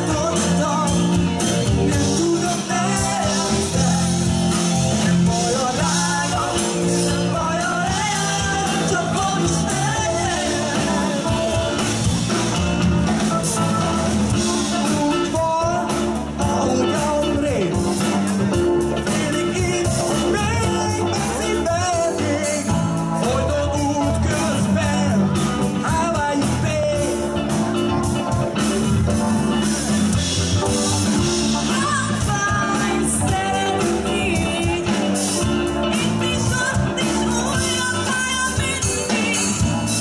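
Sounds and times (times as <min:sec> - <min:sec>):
man and woman singing: 0:00.0 - 0:11.9, 0:31.6 - 0:40.0
bass guitar: 0:00.0 - 0:40.0
drums: 0:00.0 - 0:40.0.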